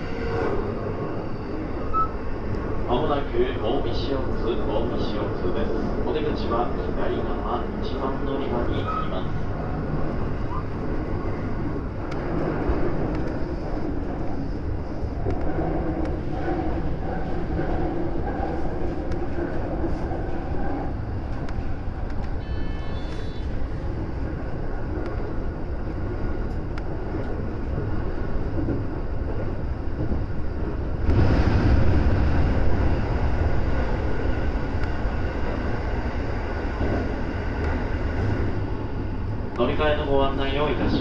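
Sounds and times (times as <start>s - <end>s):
brief high tone: 22.4s - 23.5s.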